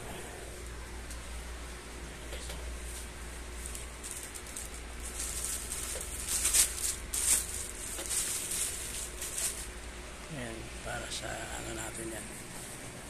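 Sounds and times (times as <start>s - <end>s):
plastic wrapping crinkling: 2.9s - 9.8s.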